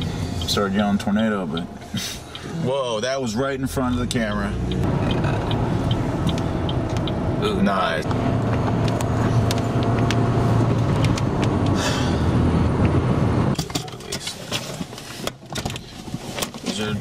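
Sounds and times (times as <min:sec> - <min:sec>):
car engine and road drone: 0:00.0 - 0:17.0.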